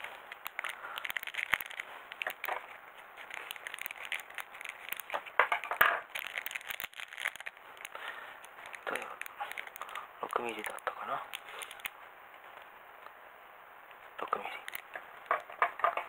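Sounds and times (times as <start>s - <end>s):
scissors cutting plastic: 0.0s - 11.9s
plastic bag crinkling: 0.0s - 12.6s, 14.3s - 16.0s.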